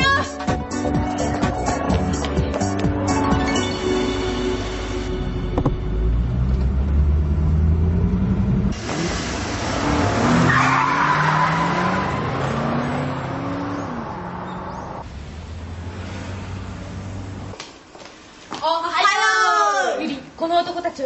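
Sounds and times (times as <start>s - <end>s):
car engine revving: 5.6s - 17.5s.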